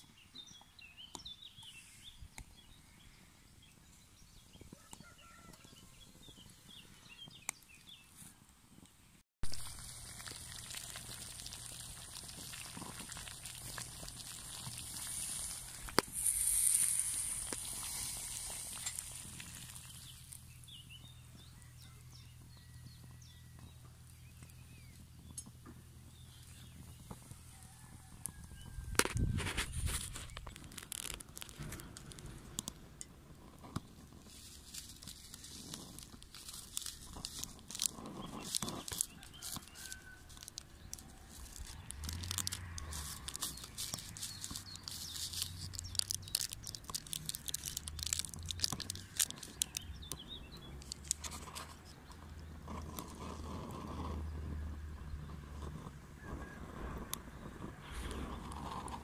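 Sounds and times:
rustling and scraping: 0:09.5 - 0:20.6, 0:25.4 - 0:59.0
stick stirring in metal mug: 0:10.2 - 0:20.4, 0:35.1 - 0:49.8.

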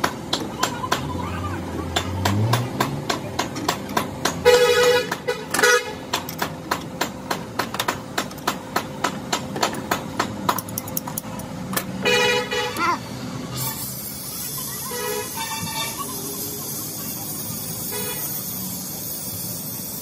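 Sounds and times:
vehicle horn honking: 0:04.4 - 0:06.0, 0:12.0 - 0:12.8, 0:14.8 - 0:16.0.

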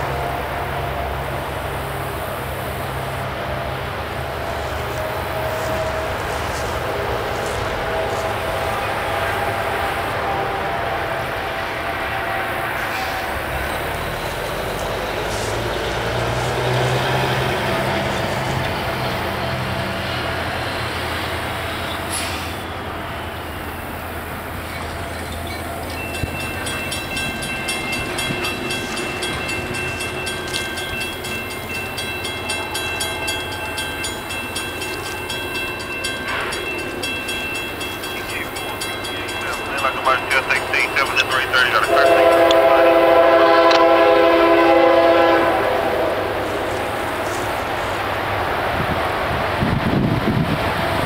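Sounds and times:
train rumbling past: 0:00.0 - 0:51.0
crossing warning bell ringing: 0:18.6 - 0:45.5.

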